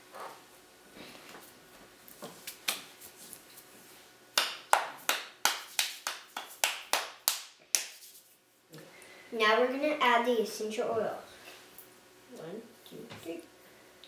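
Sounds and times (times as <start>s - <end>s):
hands clapping sharply: 4.4s - 8.1s.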